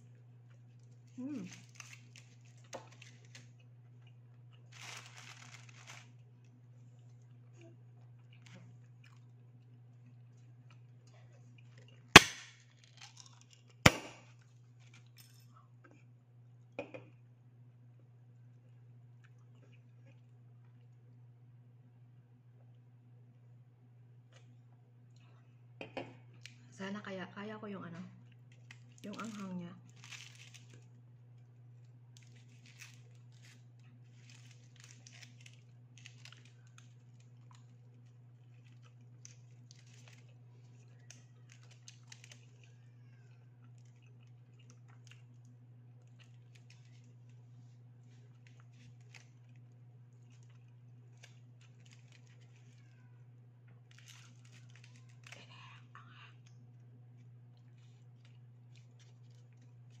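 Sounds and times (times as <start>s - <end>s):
quiet chewing: 0.0s - 12.1s, 18.4s - 21.1s, 28.2s - 60.0s
aluminium foil crinkling: 0.5s - 7.4s, 11.6s - 15.4s, 28.2s - 45.4s, 46.0s - 53.2s, 53.8s - 55.8s, 57.6s - 60.0s.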